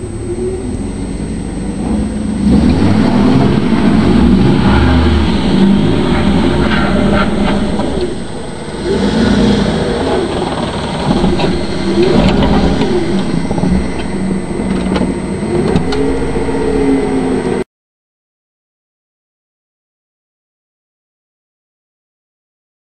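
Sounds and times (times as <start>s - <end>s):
pickup truck engine revving: 0.0s - 17.6s.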